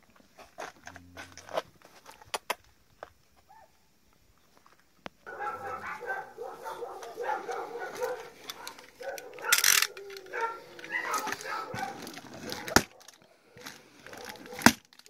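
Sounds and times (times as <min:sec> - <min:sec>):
dogs whining and yelping: 0:05.3 - 0:14.7
box cutter ripping packing tape: 0:14.2 - 0:15.0.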